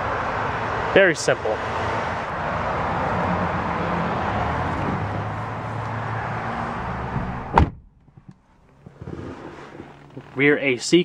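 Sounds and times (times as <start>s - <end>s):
car door slamming: 4.8s - 10.1s.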